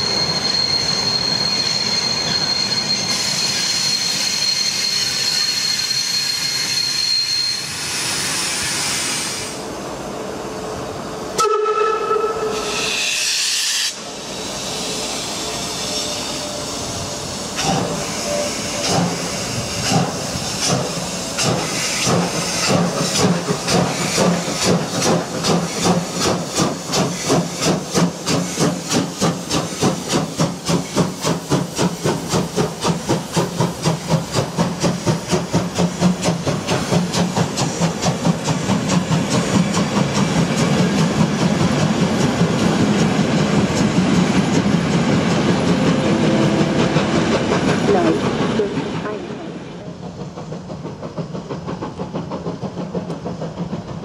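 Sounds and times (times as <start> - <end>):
steam hissing: 0.0 - 9.8, 12.5 - 54.0
steam locomotive exhaust chuffs: 11.4 - 54.0.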